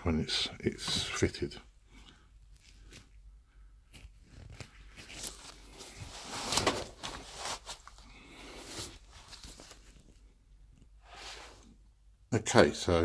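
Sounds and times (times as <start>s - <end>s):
plastic cover rustling and scraping: 3.8s - 10.3s.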